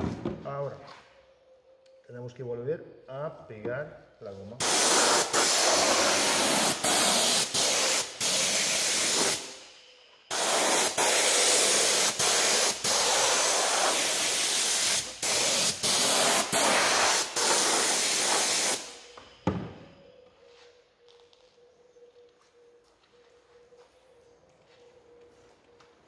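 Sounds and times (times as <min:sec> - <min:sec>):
spray gun hissing: 0:04.6 - 0:09.7, 0:10.3 - 0:19.1.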